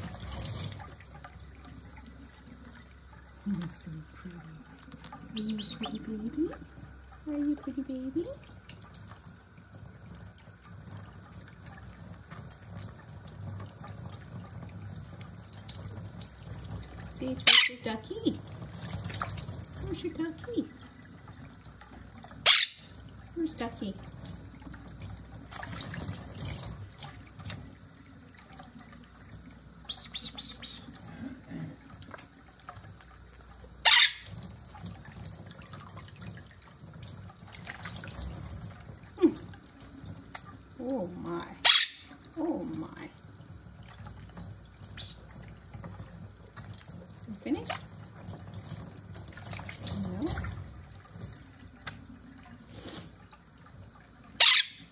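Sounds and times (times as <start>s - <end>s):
faucet running into water: 0.0s - 54.9s
wings flapping and splashing: 15.5s - 20.2s, 23.9s - 27.7s, 46.6s - 52.2s.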